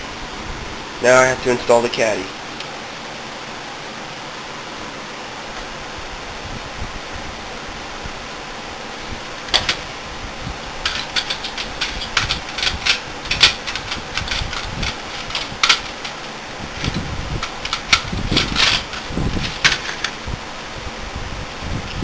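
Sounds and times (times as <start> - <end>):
steady hiss: 0.0 - 22.0
metal clicks and clanks: 9.5 - 9.8, 10.8 - 20.2.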